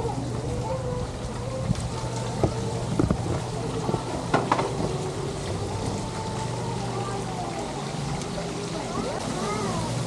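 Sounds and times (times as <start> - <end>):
water splashing and trickling: 0.0 - 10.0
wind rumbling on microphone: 1.6 - 4.0.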